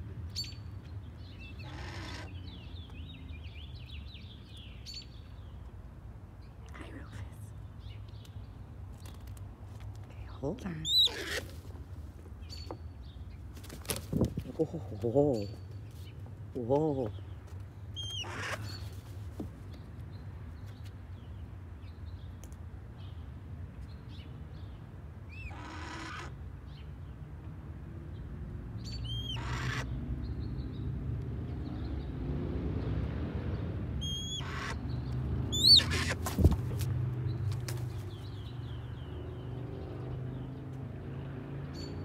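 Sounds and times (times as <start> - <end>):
hawk screeching: 34.0 - 34.8, 35.6 - 36.2.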